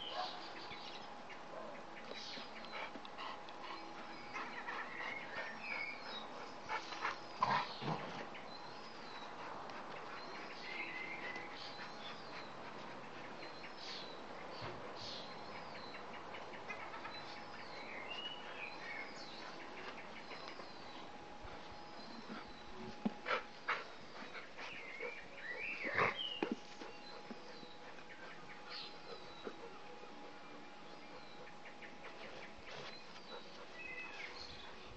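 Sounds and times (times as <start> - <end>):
small birds chirping: 0.0 - 34.9
dogs play-fighting: 2.0 - 34.9.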